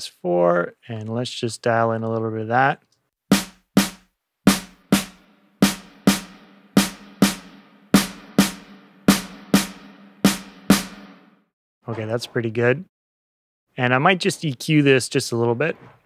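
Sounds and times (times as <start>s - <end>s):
snare drum hits with reverb: 3.3s - 11.3s.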